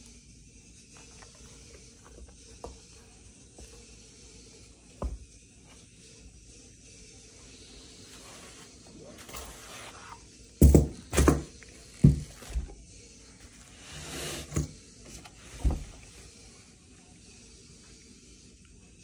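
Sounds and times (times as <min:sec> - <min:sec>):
dull thumps and knocks: 0:10.6 - 0:12.7.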